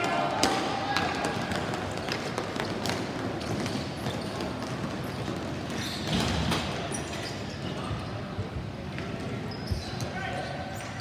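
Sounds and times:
hockey sticks and ball clacking: 0.0s - 7.2s
general game noise: 0.0s - 11.0s.

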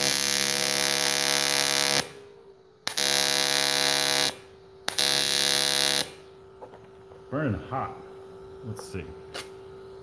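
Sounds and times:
welding arc buzzing: 0.0s - 6.9s
welding machine hum: 0.0s - 7.2s.

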